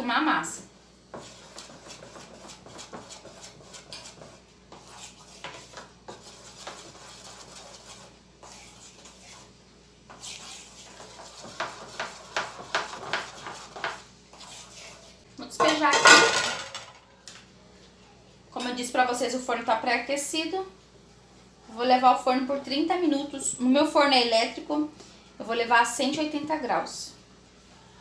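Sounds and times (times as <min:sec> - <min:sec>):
spoon stirring batter in bowl: 0:01.0 - 0:16.0.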